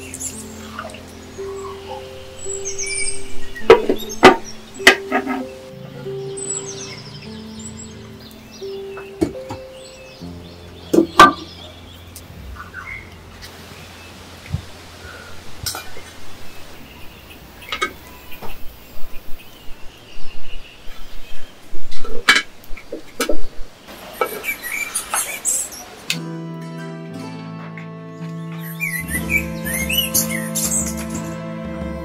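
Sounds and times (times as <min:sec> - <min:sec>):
music: 0:00.0 - 0:15.4, 0:26.1 - 0:32.0
birds chirping faintly: 0:00.0 - 0:26.4, 0:27.5 - 0:32.0.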